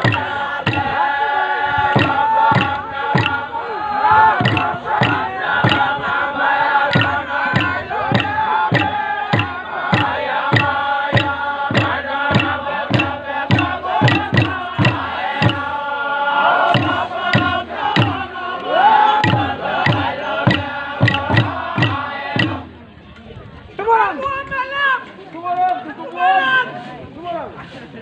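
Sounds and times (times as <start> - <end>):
steady percussive beat: 0.0 - 16.0, 16.6 - 22.9
men chanting in unison: 0.0 - 22.8.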